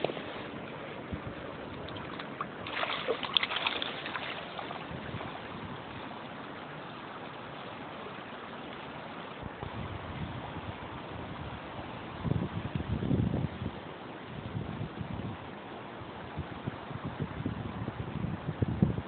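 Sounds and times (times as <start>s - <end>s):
shallow river water running: 0.0s - 19.0s
fish splashing in water: 1.7s - 6.7s.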